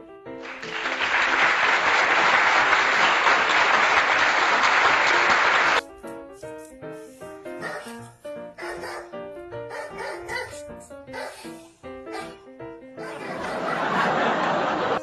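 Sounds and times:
light piano music: 0.0 - 3.2, 4.6 - 15.0
applause: 0.4 - 5.8.

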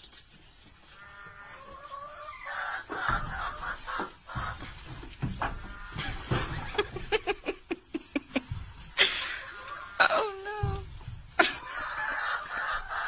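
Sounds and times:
goats knocking against boards: 2.9 - 7.7
person laughing: 6.0 - 10.8, 11.4 - 11.8.

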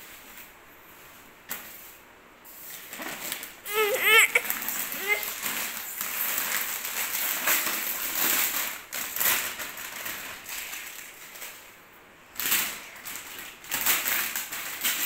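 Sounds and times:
plastic packaging crinkling: 2.7 - 11.7, 12.4 - 15.0.

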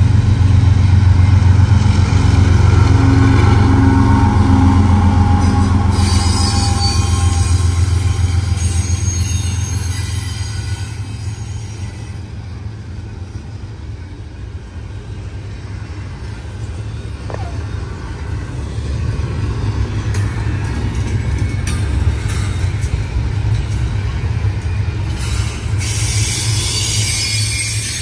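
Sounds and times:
freight train rumbling past: 0.0 - 28.0.

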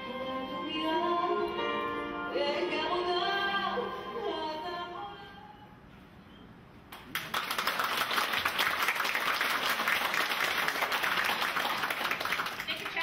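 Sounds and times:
audience applauding: 6.9 - 13.0.

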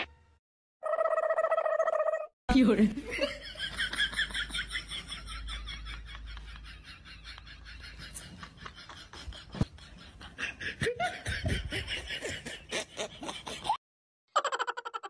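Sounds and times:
laughter: 2.9 - 13.8.

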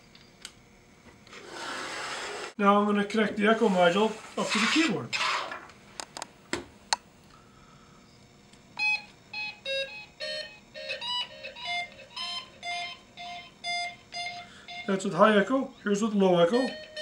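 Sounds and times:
electronic keyboard beeping notes with echo: 8.8 - 17.0.

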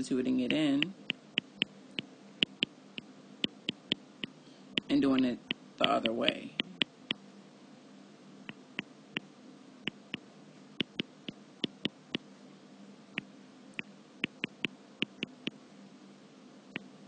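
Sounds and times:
faint steady hum: 0.0 - 17.0
stylus tapping on touchscreen: 2.4 - 2.7, 4.8 - 6.9, 10.8 - 12.0, 14.2 - 15.6.

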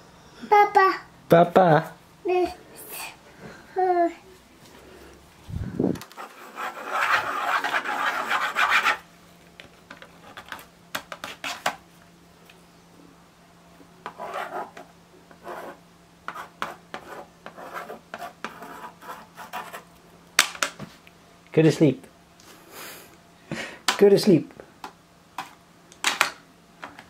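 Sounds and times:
stylus scratching on plastic board: 6.0 - 9.0, 10.2 - 11.8, 14.0 - 19.9.

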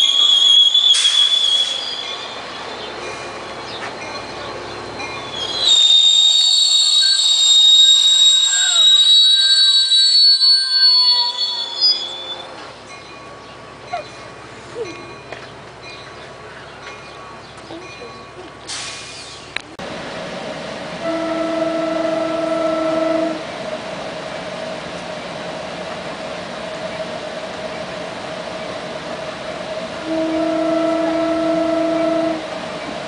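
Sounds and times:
train wheels squealing: 0.0 - 15.2
train running hum: 0.0 - 33.0
high whining tones: 4.2 - 12.7.

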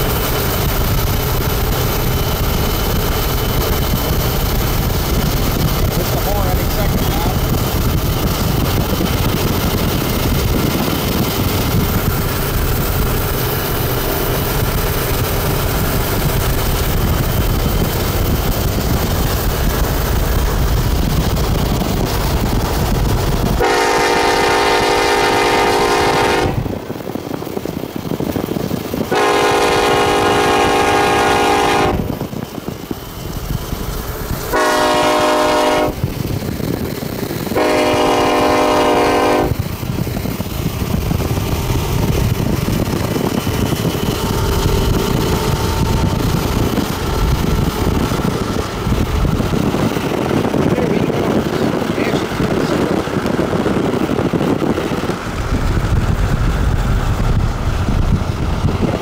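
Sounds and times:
diesel locomotive rumble: 0.0 - 59.0
locomotive air horn blasts: 23.6 - 26.8, 29.1 - 32.1, 34.5 - 36.0, 37.6 - 39.6.

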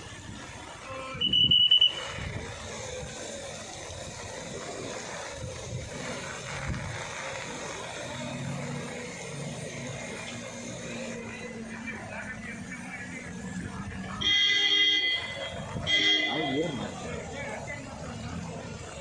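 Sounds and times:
floodwater rushing across street: 0.0 - 19.0
vehicle engine running: 0.0 - 19.0
high-pitched electronic beep: 1.2 - 2.2.

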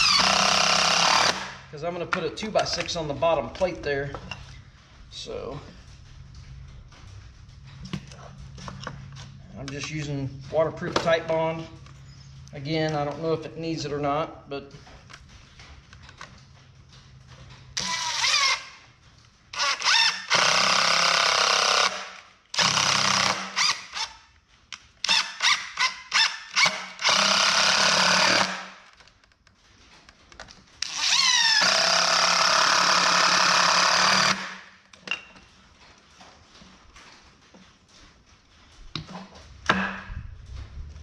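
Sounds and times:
cordless impact driver driving screws: 0.0 - 1.7, 17.8 - 18.8, 19.5 - 24.2, 25.0 - 28.9, 30.8 - 34.7.

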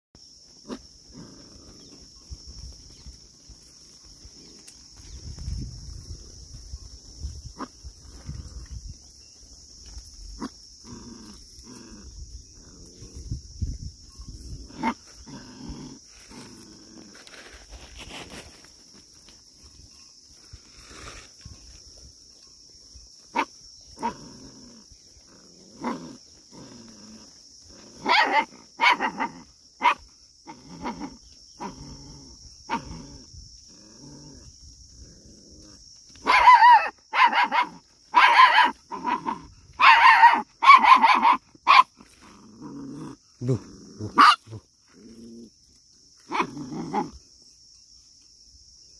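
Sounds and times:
puppy barking: 28.0 - 30.0, 36.2 - 41.9, 43.5 - 44.6, 46.3 - 47.1.

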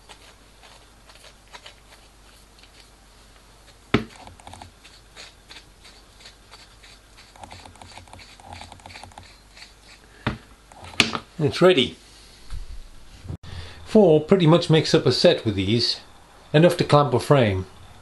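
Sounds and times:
metal rod ticks and scrapes: 7.2 - 9.7.

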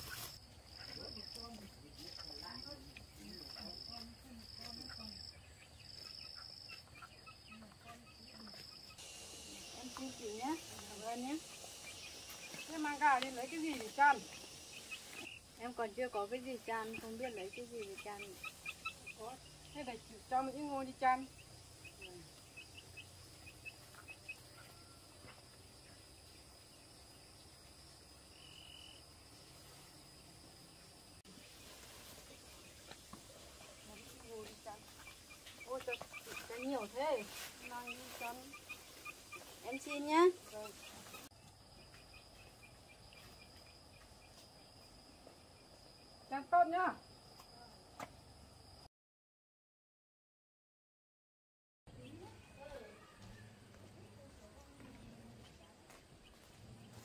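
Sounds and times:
faint insect trilling: 6.1 - 48.8
faint high whine: 9.0 - 15.4.

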